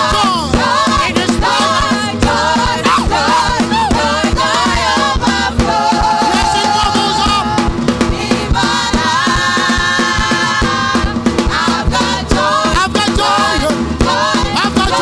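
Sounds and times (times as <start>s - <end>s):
drums: 0.0s - 15.0s
group singing gospel song: 0.0s - 15.0s.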